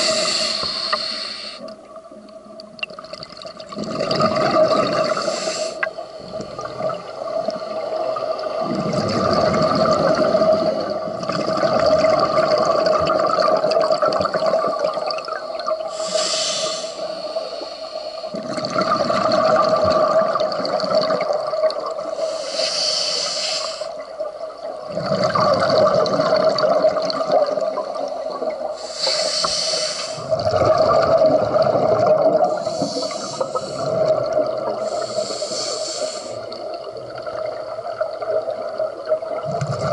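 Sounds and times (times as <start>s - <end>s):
regulator inhalation hiss: 0.0s - 1.7s, 5.1s - 6.0s, 15.6s - 18.4s, 22.1s - 24.0s, 28.8s - 30.3s, 32.5s - 34.1s, 34.8s - 36.6s
exhaled bubbles: 2.7s - 17.6s, 18.3s - 22.3s, 23.8s - 28.9s, 30.2s - 39.9s.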